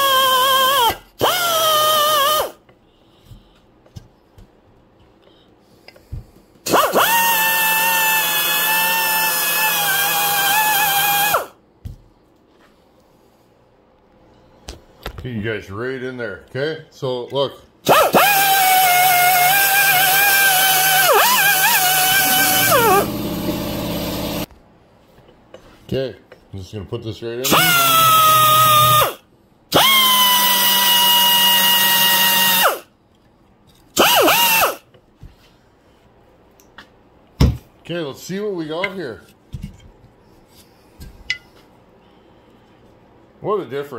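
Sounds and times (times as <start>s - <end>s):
power tool whining: 6.7s - 11.5s, 17.9s - 24.5s, 27.5s - 32.8s, 34.0s - 34.8s
rotary tool wire brush whine: 18.0s - 24.5s.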